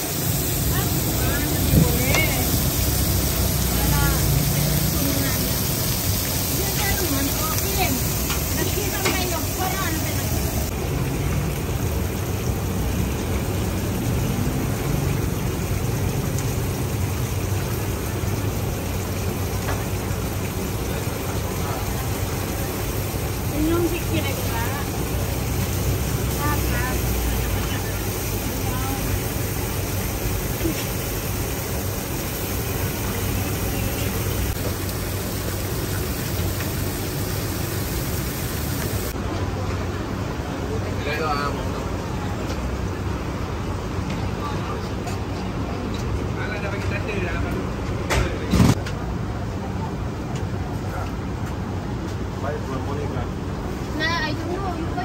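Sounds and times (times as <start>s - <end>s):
fish frying in hot oil: 0.0s - 44.9s
constant hiss: 0.0s - 47.8s.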